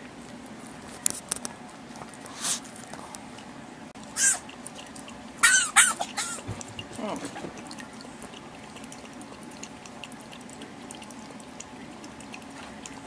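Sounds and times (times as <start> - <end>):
dog lapping from mug: 3.3 - 13.0.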